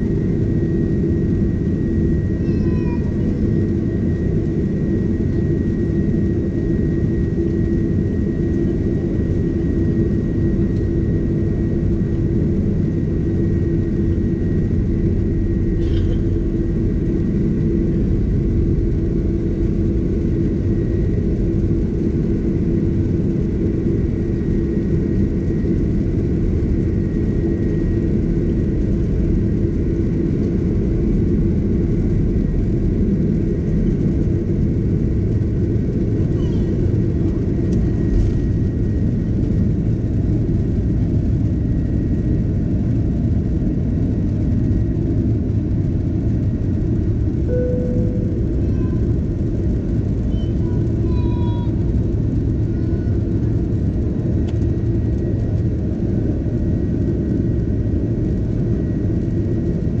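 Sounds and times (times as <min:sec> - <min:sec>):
jet engine rumble in cabin: 0:00.0 - 1:00.0
faint high tone: 0:47.5 - 0:49.2.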